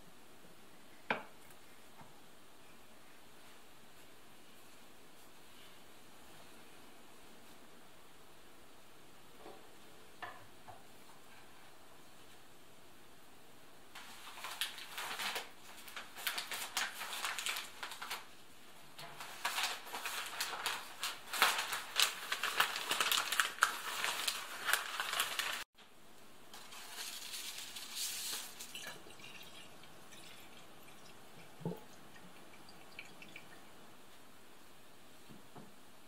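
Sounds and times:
water splashing in a sink: 28.4 - 33.7
water filling a glass bottle: 28.6 - 33.6.

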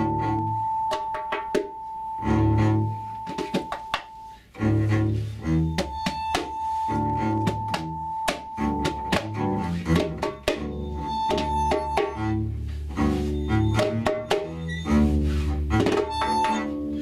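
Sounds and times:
double bass low notes: 0.0 - 1.0, 1.7 - 17.0
percussion clicks and knocks: 0.9 - 1.8, 3.2 - 4.2, 7.3 - 12.5, 13.5 - 14.9, 15.7 - 16.8.

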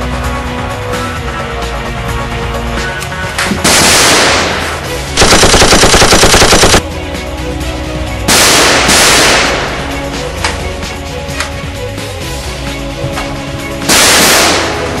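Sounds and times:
background music: 0.0 - 15.0
machine-gun fire: 3.7 - 6.8, 13.9 - 14.9.

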